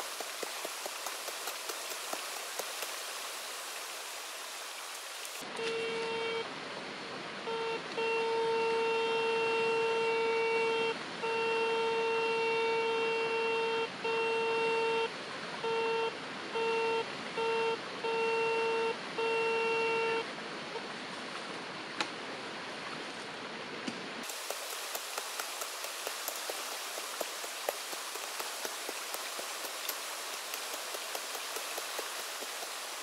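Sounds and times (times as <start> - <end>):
steady hiss: 0.0 - 5.5, 24.2 - 33.0.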